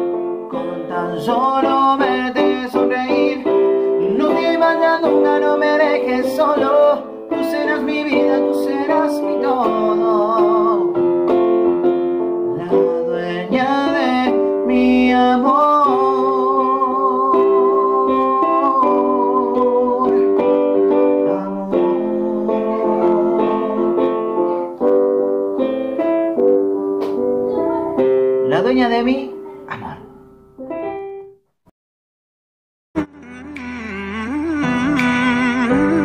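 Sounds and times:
electronic keyboard chords: 0.0 - 31.4, 33.0 - 36.0
man singing wavering notes: 12.6 - 24.1.

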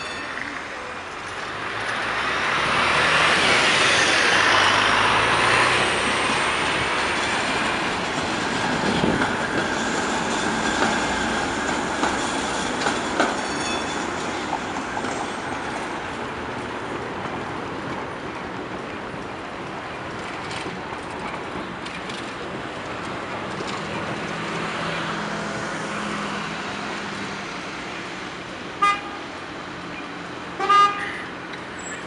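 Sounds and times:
tram wheels grinding on rails: 0.0 - 28.7
wheels clicking over rail joints: 6.3 - 24.6
high wheel squeal: 12.2 - 14.4, 31.0 - 32.0.

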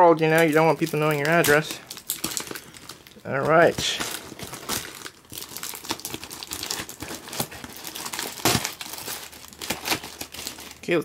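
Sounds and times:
plastic wrapping crinkling: 0.0 - 11.0
packing tape peeling and tearing: 0.1 - 10.8.

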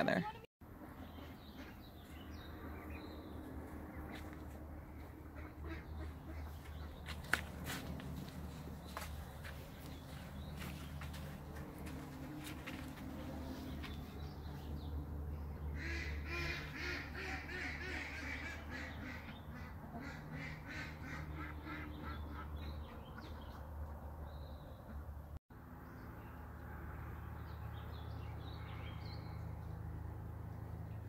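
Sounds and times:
ducks quacking: 5.0 - 8.4, 15.7 - 23.5.

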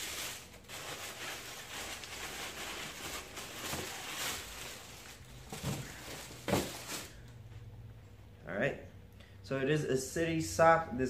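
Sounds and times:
tissue paper rustling: 0.0 - 7.2.

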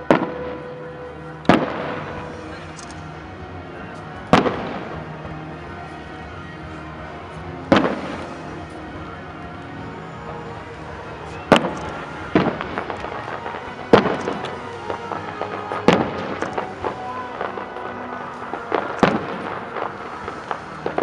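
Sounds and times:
firework pops and crackling: 1.4 - 3.1, 4.3 - 5.1, 7.7 - 8.5, 11.2 - 21.0
firework shells bursting with bangs: 1.5 - 3.1, 7.7 - 8.6, 11.3 - 21.0.

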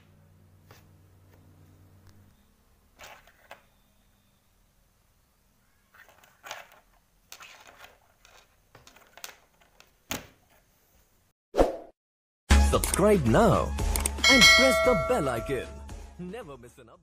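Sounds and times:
earphone cable rustling on table: 5.9 - 10.7.

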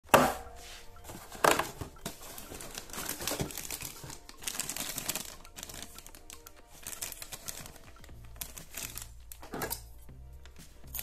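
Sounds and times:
plastic bag crinkling: 1.0 - 9.8.

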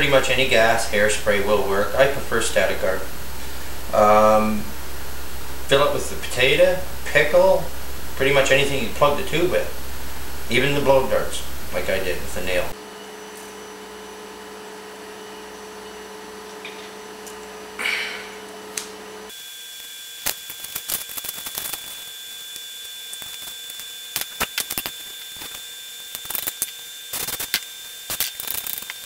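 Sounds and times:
faint high whine: 0.0 - 14.2
electrical hum: 0.0 - 29.0
paper being folded: 20.7 - 22.0.

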